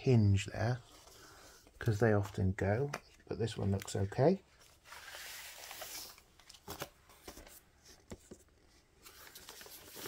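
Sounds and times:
paper sleeve sliding rustle: 0:04.6 - 0:08.0.

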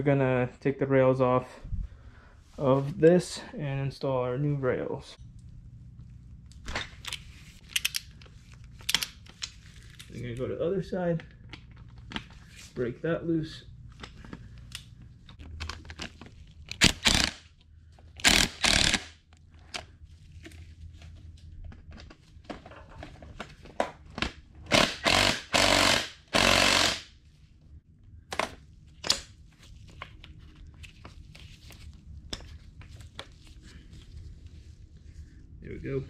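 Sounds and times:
power impact tool hammering: 0:18.2 - 0:19.1, 0:24.7 - 0:27.1.

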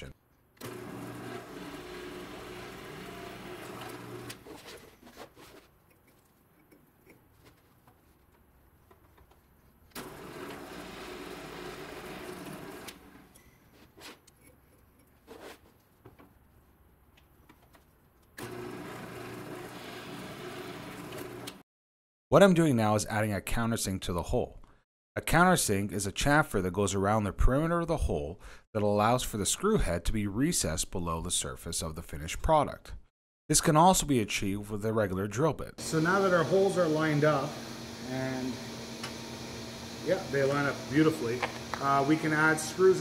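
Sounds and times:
drill press motor drilling metal: 0:00.6 - 0:04.5, 0:10.0 - 0:13.3, 0:18.4 - 0:21.6, 0:35.8 - 0:43.0.

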